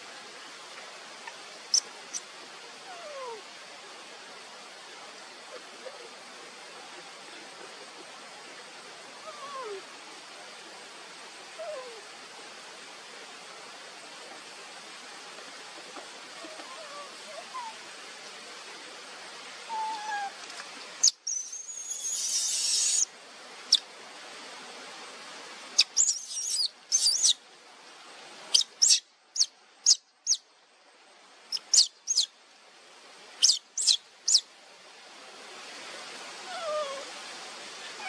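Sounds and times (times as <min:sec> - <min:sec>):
brief hiss: 0:20.4 - 0:23.1
baby monkey squeaking: 0:21.0 - 0:23.1, 0:25.8 - 0:27.4, 0:28.5 - 0:30.4, 0:31.5 - 0:32.3, 0:33.4 - 0:34.4.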